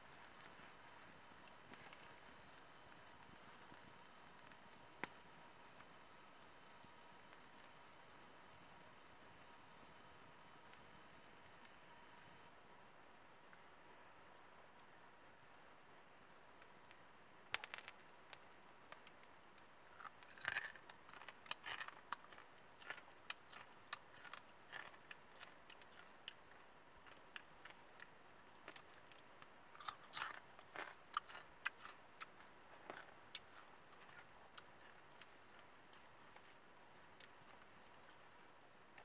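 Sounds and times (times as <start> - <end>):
chewing and crunching: 0.0 - 11.8, 20.0 - 39.0.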